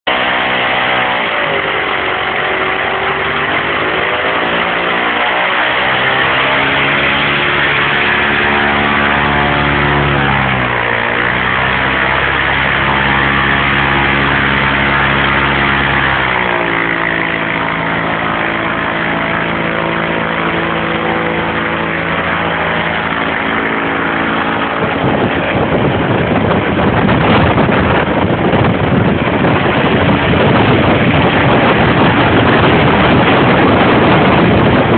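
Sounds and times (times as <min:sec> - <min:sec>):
aircraft engine running: 0:00.0 - 0:34.9
rushing blown air: 0:00.1 - 0:34.9.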